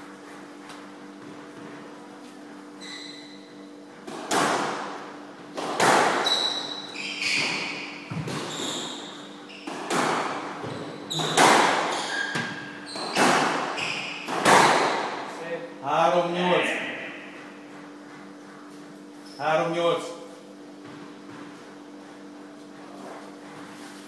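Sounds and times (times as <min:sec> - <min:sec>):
squash ball hitting rackets and walls: 0:00.9 - 0:15.4, 0:20.7 - 0:23.8
shoes squeaking on wooden floor: 0:02.7 - 0:03.7, 0:06.2 - 0:14.4.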